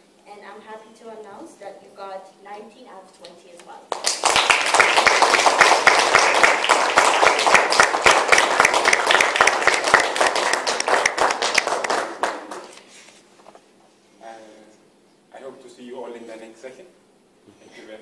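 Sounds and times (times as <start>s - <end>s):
audience applauding: 3.9s - 12.8s.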